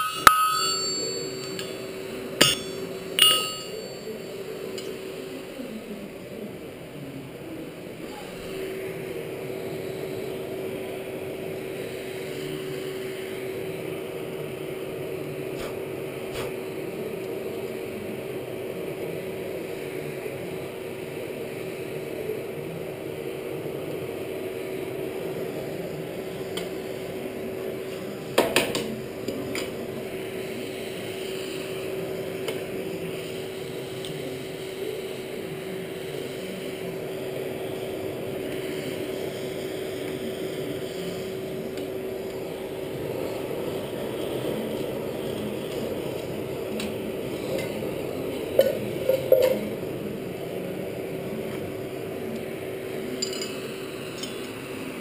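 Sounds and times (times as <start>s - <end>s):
light metal clinks: 0.0s - 4.9s
forge blower motor hum: 0.0s - 55.0s
metal clattering on metal: 2.4s - 4.0s.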